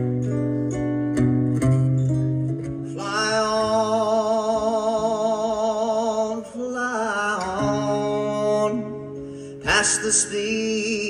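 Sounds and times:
acoustic guitar: 0.0 - 11.0
man singing with vibrato: 2.8 - 11.0.

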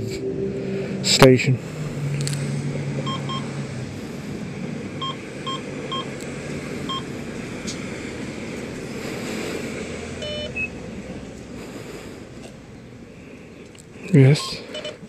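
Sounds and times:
steady background noise: 0.0 - 15.0
keypad beeping: 3.0 - 3.4, 5.0 - 6.1, 10.2 - 10.7, 14.4 - 15.0
lower pump beep: 3.0 - 3.5, 5.0 - 6.1, 6.9 - 7.1, 10.2 - 10.8, 14.4 - 15.0.

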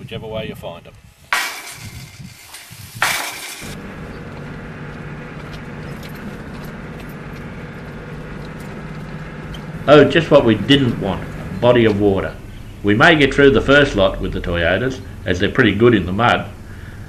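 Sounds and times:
harsh noise burst: 1.2 - 4.1
vehicle engine and tyres droning: 1.3 - 17.0.

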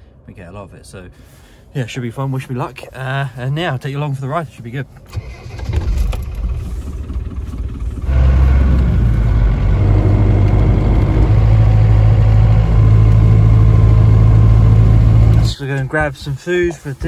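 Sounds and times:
engine droning inside cab: 5.1 - 15.8.

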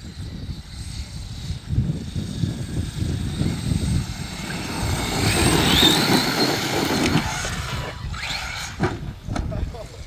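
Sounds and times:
electric motor whine: 0.0 - 10.0
tyres running over dirt: 3.1 - 9.2.

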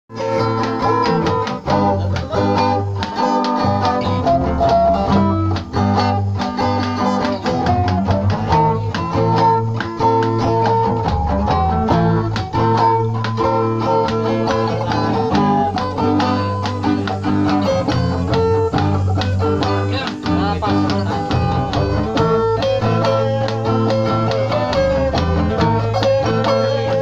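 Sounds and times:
acoustic guitars playing: 0.1 - 27.0
low bass line: 7.4 - 27.0.

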